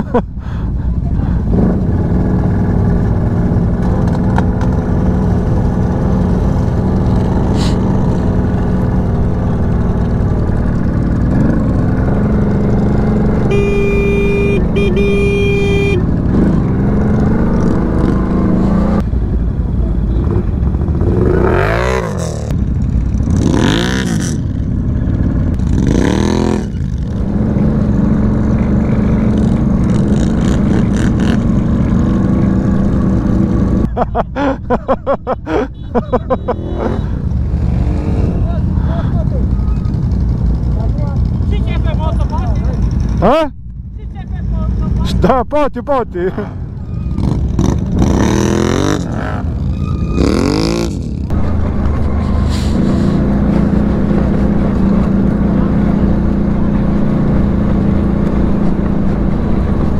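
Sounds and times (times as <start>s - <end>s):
atv engine running and revving: 0.0s - 45.5s, 46.3s - 59.9s
horn-like tone: 13.4s - 16.1s.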